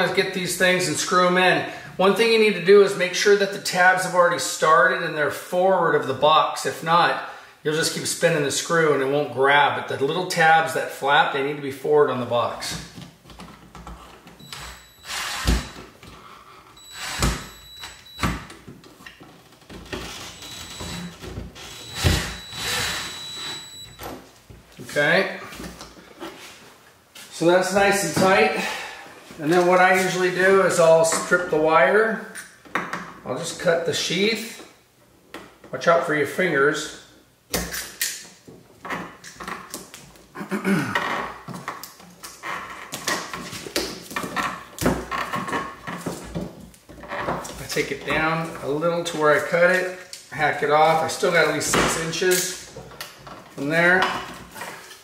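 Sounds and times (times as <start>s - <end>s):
cordless drill driving screws: 14.5s - 15.8s, 16.8s - 17.9s, 21.6s - 23.6s.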